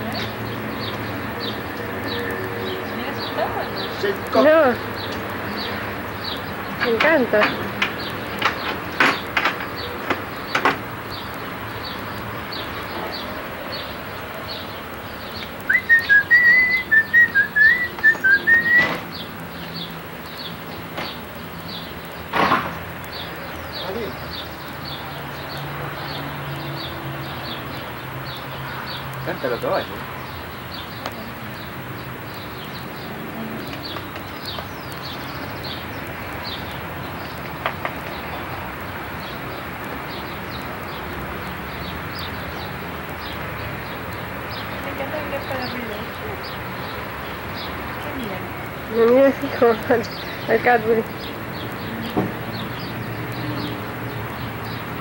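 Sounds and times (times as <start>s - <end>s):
small birds chirping: 0.0s - 55.0s
person whistling a tune: 15.7s - 18.9s.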